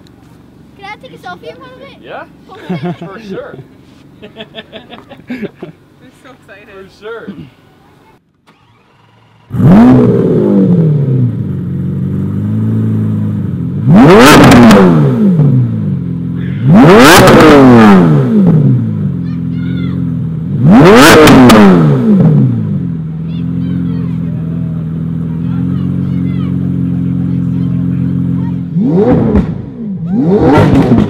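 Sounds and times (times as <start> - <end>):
sports car engine revving: 8.5 - 31.0.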